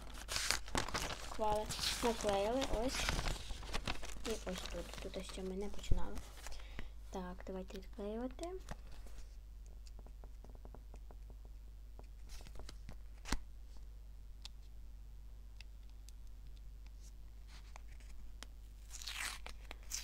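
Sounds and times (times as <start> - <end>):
paper rustling and clicking: 0.0 - 6.8, 12.0 - 13.4.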